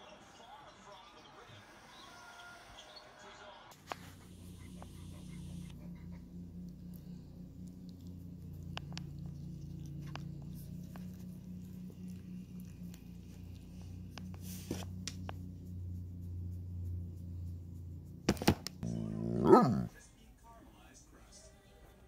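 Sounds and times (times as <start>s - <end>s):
steady low hum: 3.7s - 20.0s.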